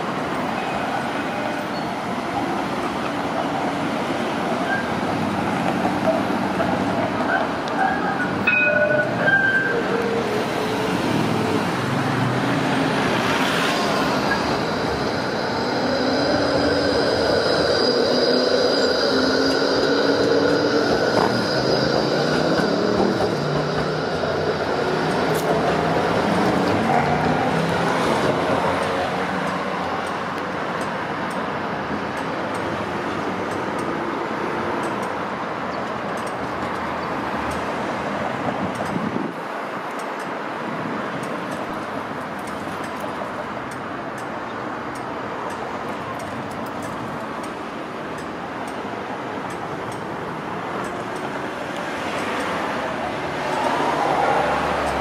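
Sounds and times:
road traffic: 0:00.0 - 0:55.0
tram electric whine: 0:00.1 - 0:44.3, 0:44.9 - 0:55.0
wheels on rails: 0:13.1 - 0:32.8, 0:41.1 - 0:55.0.

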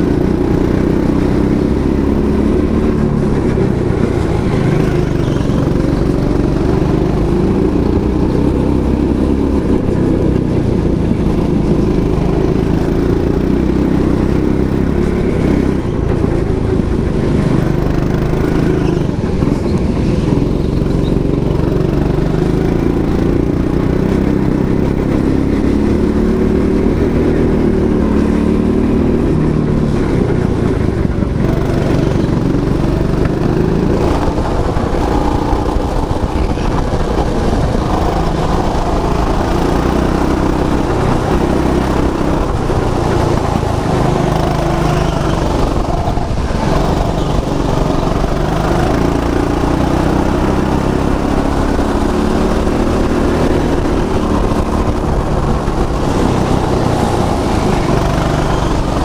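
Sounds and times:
go-kart engine revving: 0:00.0 - 0:59.0.

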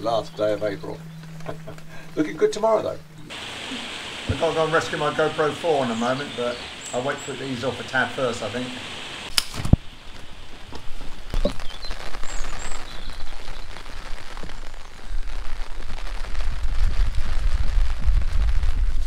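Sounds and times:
rain pattering: 0:03.3 - 0:19.0
low rumble: 0:15.2 - 0:19.0.

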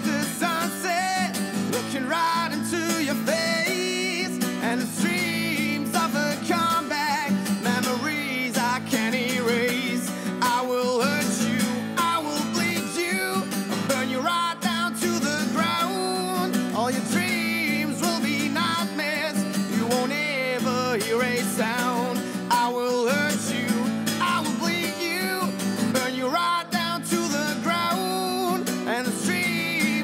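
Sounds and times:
acoustic guitar strumming: 0:00.0 - 0:30.0
man singing: 0:00.0 - 0:30.0.

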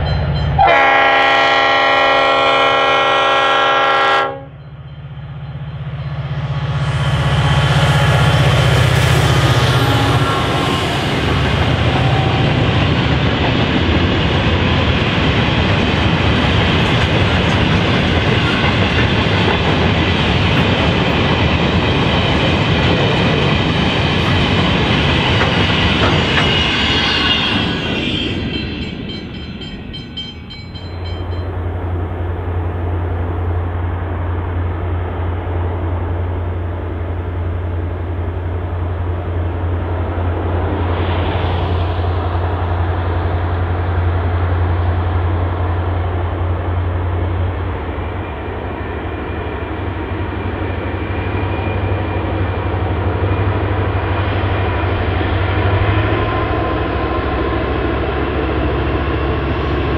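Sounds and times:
diesel locomotive drone: 0:00.0 - 0:59.9.

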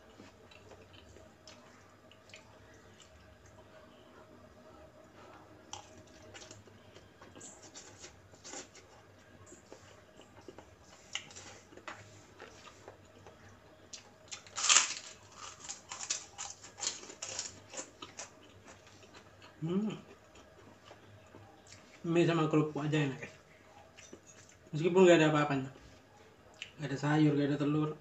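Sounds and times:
chewing noodles: 0:00.1 - 0:03.8, 0:05.0 - 0:22.0
crunchy cracker bite: 0:14.3 - 0:18.3.

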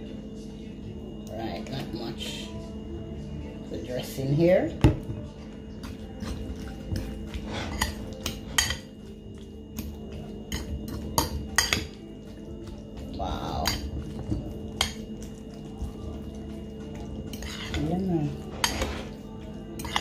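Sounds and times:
fork clinking against ceramic bowl: 0:06.2 - 0:08.9, 0:10.5 - 0:12.0, 0:17.3 - 0:20.0.

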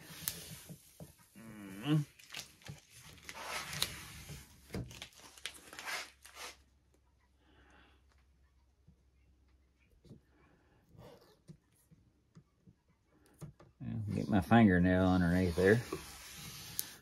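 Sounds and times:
tape peeling off: 0:02.1 - 0:06.6.

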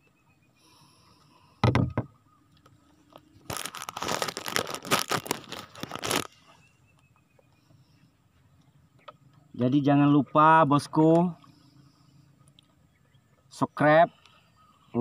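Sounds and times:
plastic bag crinkling: 0:03.4 - 0:06.4.

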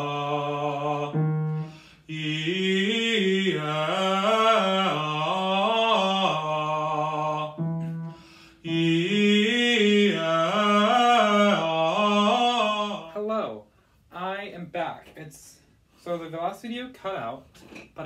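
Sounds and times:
man singing vocal scales: 0:00.0 - 0:13.6.

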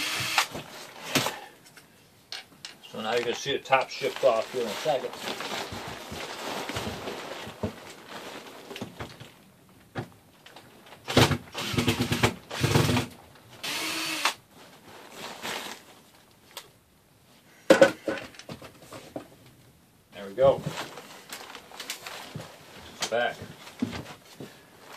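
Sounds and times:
cordless drill whine: 0:00.0 - 0:00.6, 0:11.5 - 0:13.0, 0:13.6 - 0:14.4.

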